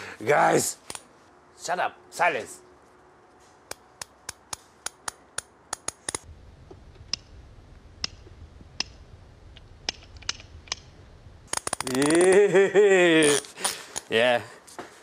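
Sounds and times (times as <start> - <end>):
low hum: 5.4 - 11.8.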